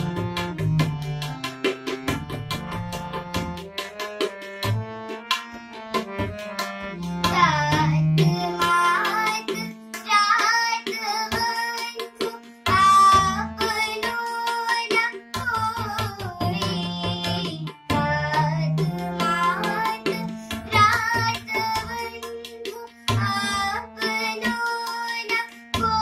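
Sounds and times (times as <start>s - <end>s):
harmonium chords: 0.0s - 26.0s
tabla strokes: 0.0s - 26.0s
girl singing devotional song: 7.2s - 26.0s.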